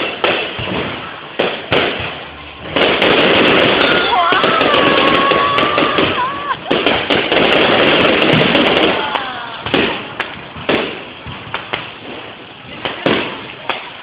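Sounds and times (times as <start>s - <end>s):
fireworks bangs and pops: 0.0s - 14.0s
fireworks crackling: 0.0s - 14.0s.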